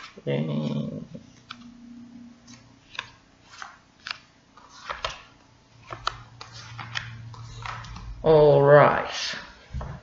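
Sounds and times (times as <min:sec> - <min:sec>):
cards snapping and clicking: 0:02.5 - 0:08.1.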